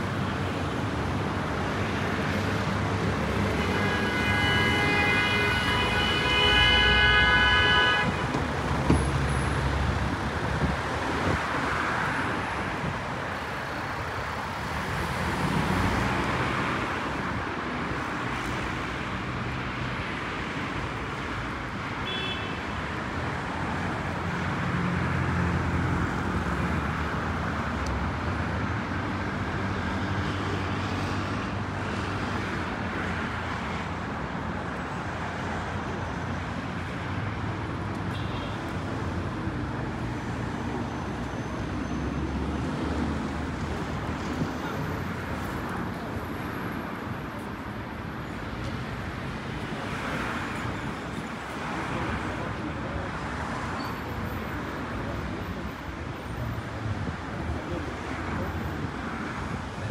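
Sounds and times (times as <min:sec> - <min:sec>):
road traffic passing: 0:00.0 - 0:59.9.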